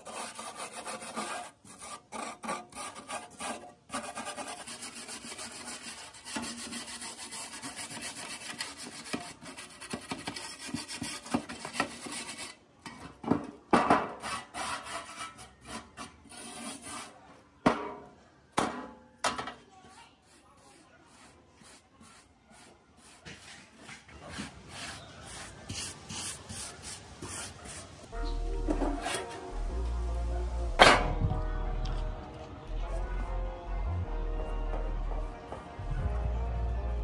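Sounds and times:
metal scraper scraping rust: 0.0 - 13.1, 13.9 - 17.2, 20.2 - 29.6.

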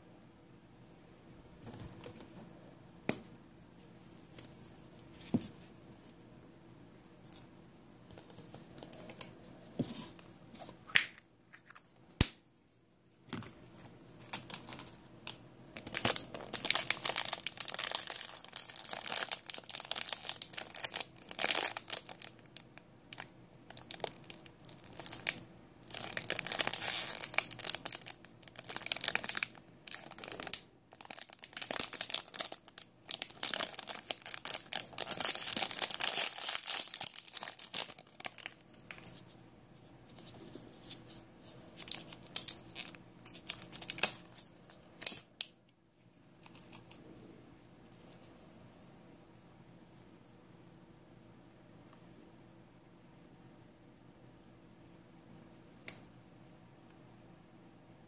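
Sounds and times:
plastic foil packets crinkling: 14.2 - 39.2, 41.7 - 45.5.

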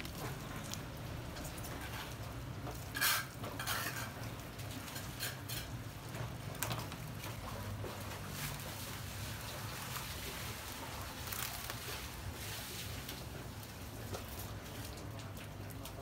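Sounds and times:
water sloshing in plastic basin: 6.1 - 15.8.

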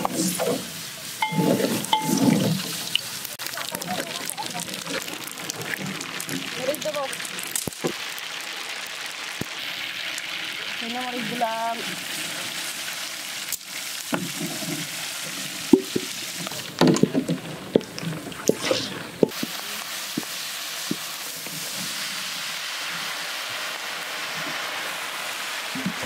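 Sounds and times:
metal spatula scraping a pan: 0.0 - 3.0
chillies sizzling in hot oil: 0.0 - 26.0.

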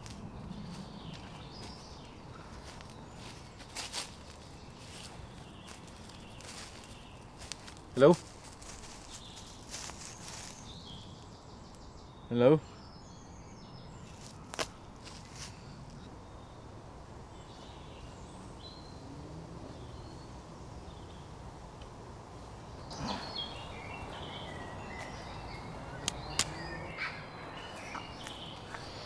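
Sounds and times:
birds calling: 0.0 - 29.0
low woodland background noise: 0.0 - 29.0
sharp snaps: 26.0 - 26.6.

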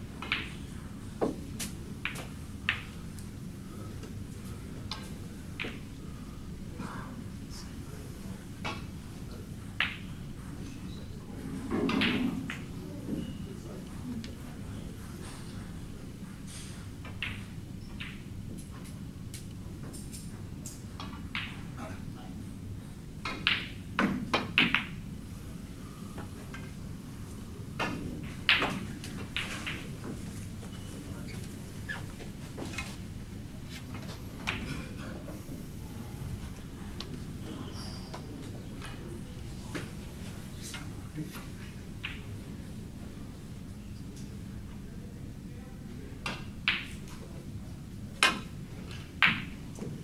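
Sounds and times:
low steady hall hum: 0.0 - 50.0
snooker balls clicking: 0.2 - 0.6, 1.2 - 3.3, 4.8 - 5.9, 23.2 - 25.0, 27.8 - 30.8, 33.9 - 34.8, 42.0 - 42.3, 48.2 - 49.9
snooker balls clicking together: 0.2 - 0.6, 27.8 - 30.3.

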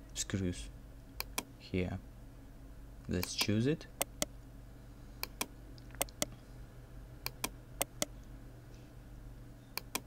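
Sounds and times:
low steady hum: 0.0 - 10.0
computer mouse clicking: 1.2 - 1.5, 5.2 - 6.3, 7.2 - 8.2, 9.8 - 10.0.

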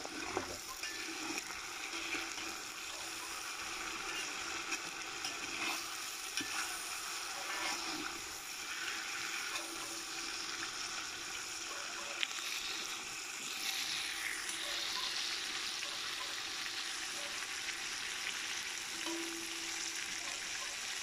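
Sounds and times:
meat sizzling in fat: 0.0 - 21.0
metal spoon clicks and scrapes: 4.0 - 8.0.

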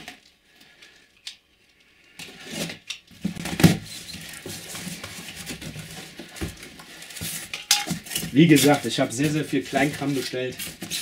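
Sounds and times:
cardboard rustling and scraping: 2.3 - 11.0.

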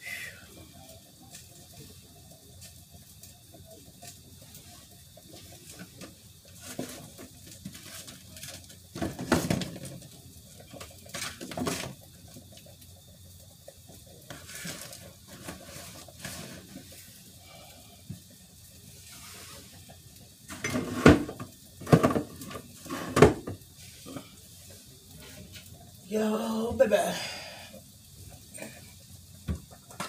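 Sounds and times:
pots and utensils scraping: 10.8 - 12.0, 14.3 - 17.0, 20.5 - 24.4.

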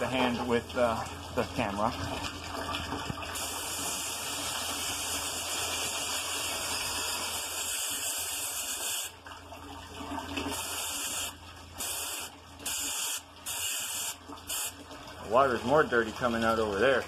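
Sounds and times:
hose nozzle spraying water: 3.3 - 9.2, 10.5 - 14.8.

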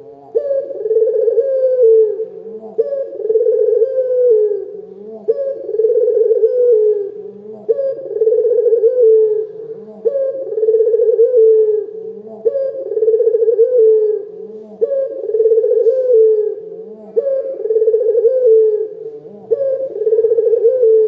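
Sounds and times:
dove cooing: 0.0 - 21.0.

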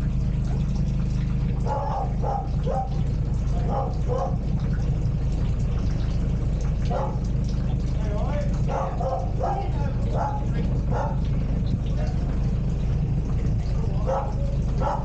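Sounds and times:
boat diesel engine idling: 0.0 - 15.0.

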